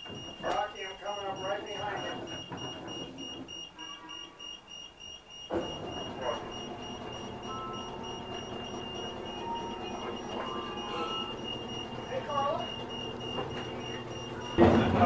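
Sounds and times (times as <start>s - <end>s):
steady mechanical hum: 0.0s - 15.0s
high-pitched tone: 6.0s - 14.6s.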